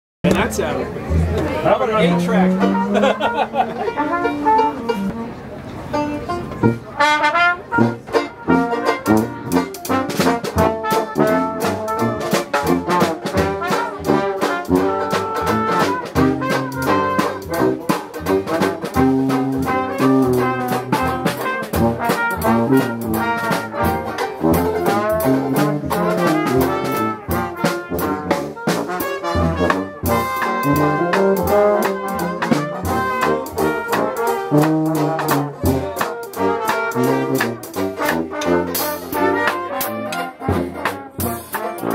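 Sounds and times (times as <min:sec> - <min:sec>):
sousaphone bass: 0:00.2 - 0:05.3
trombone: 0:01.0 - 0:41.9
steady drum beat: 0:07.7 - 0:41.9.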